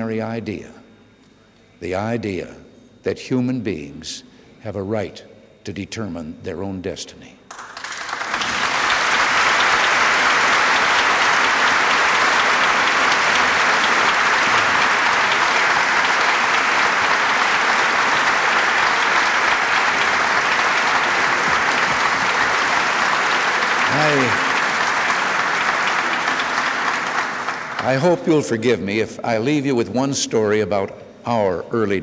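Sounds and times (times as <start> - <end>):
crowd applauding: 7.5 - 28.8.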